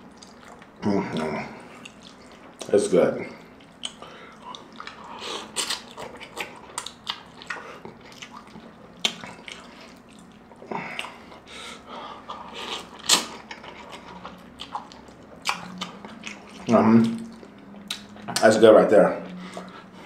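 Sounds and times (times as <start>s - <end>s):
wet chewing smacks and clicks: 0.0s - 2.7s, 3.4s - 11.4s, 12.3s - 18.6s, 19.3s - 19.9s.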